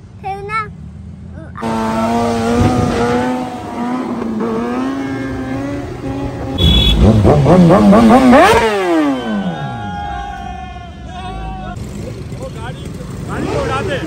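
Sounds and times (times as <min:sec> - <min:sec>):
motorcycle engine revving: 0:01.6 - 0:09.9, 0:11.7 - 0:14.0.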